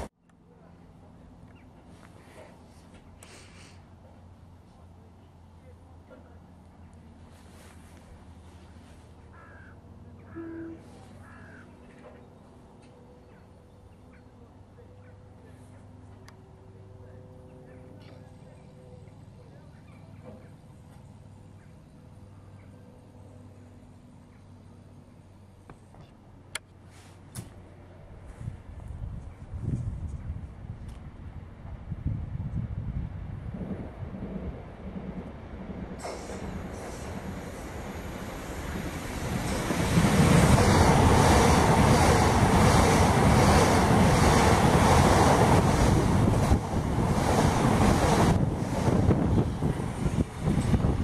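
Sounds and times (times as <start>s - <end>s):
electric train passing at speed: 0.0s - 3.2s, 30.4s - 51.0s
distant train hum: 0.0s - 51.0s
wind buffeting microphone: 28.4s - 51.0s.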